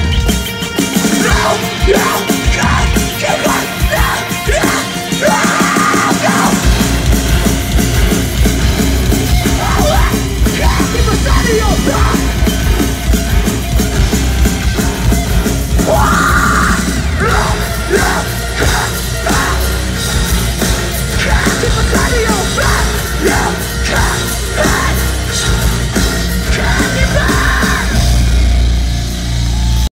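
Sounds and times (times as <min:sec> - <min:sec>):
bass guitar: 0:00.0 - 0:29.9
distorted guitar: 0:00.0 - 0:29.9
drums: 0:00.0 - 0:29.9
person yelling: 0:01.2 - 0:06.6, 0:09.5 - 0:12.4, 0:15.8 - 0:19.8.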